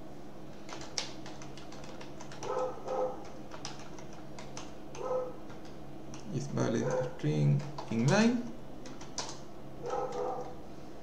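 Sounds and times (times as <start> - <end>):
steady low hum: 0.0 - 11.0
keyboard key clicks: 0.7 - 2.6, 3.2 - 6.3, 7.6 - 9.4.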